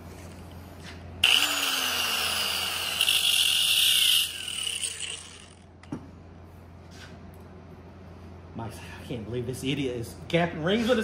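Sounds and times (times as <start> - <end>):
angle grinder grinding metal: 1.2 - 5.6.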